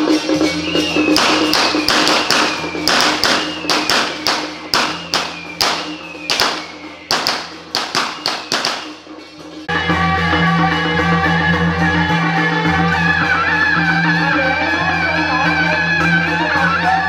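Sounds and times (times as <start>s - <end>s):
sharp strikes or bangs: 1.1s - 9.2s.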